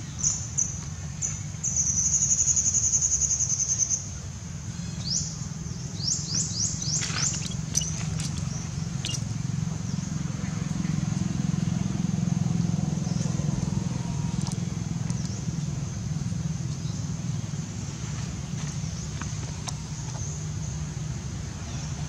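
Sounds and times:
pulsing high insect buzz: 6.6 - 10.2
quick high chirps: 7.0 - 9.4.

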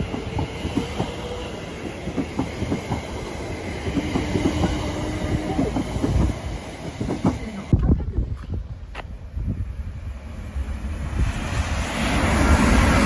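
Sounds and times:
train wheels clicking over rail joints: 0.0 - 7.8
electric train rumbling past: 0.0 - 13.0.

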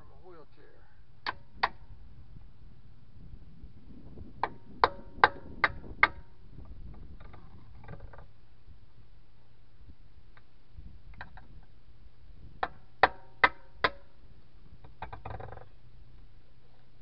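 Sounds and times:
hammer striking steel tire iron: 4.4 - 6.3, 12.6 - 14.2.

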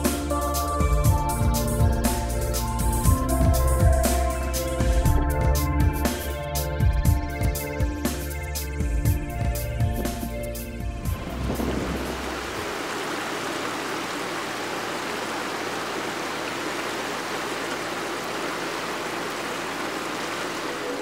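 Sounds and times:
stream rushing over stones: 11.1 - 21.0.

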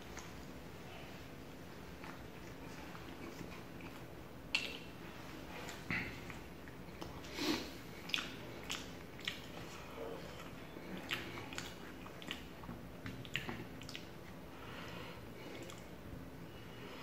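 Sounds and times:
person chewing: 1.8 - 14.4, 15.4 - 15.9.

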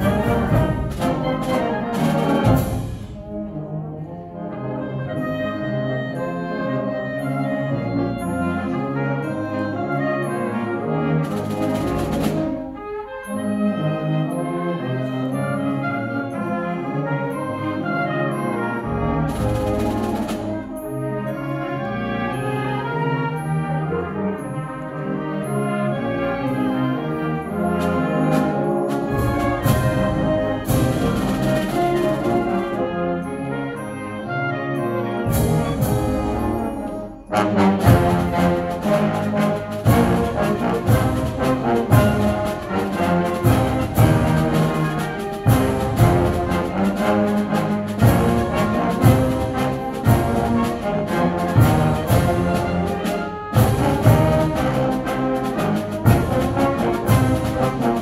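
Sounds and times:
wind band playing: 0.0 - 58.0.

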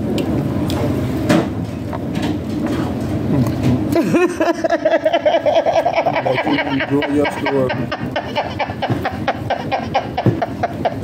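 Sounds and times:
woman laughing hard: 4.0 - 11.0.

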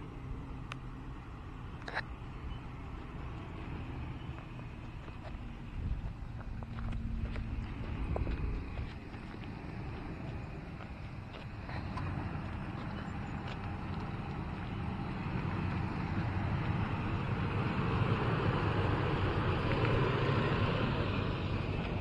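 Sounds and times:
vehicle driving on dirt track: 0.0 - 22.0.

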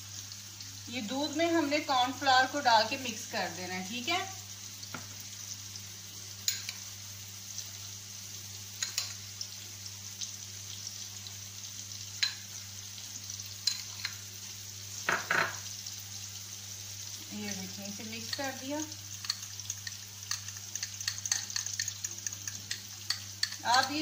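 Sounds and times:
onions sizzling in oil: 0.0 - 24.0.

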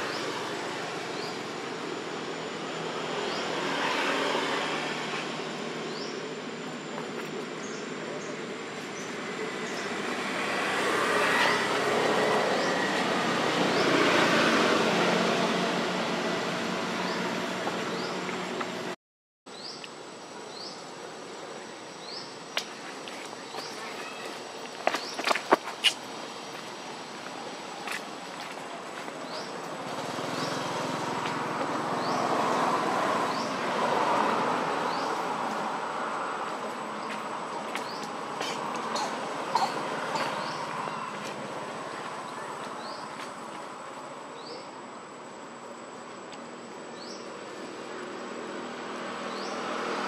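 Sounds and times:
motor vehicle passing by: 0.0 - 19.0, 28.4 - 43.8, 47.0 - 50.0.

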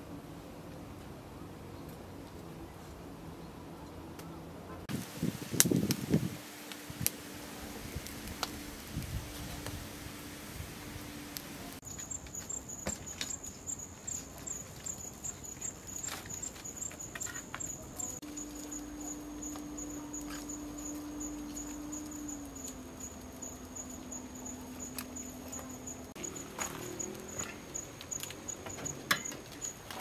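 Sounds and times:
wood fire crackling and popping: 4.9 - 30.0
high pulsing insect trill: 11.7 - 29.9.

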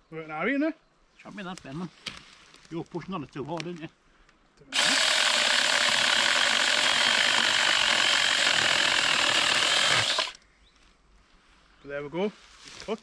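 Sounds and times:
mini chainsaw cutting log: 4.7 - 10.4.

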